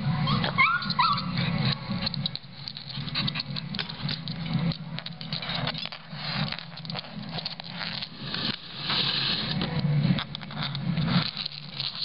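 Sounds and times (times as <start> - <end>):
dog whimpering: 0.1 - 1.6
dog claws scraping hardwood floor: 1.7 - 8.6.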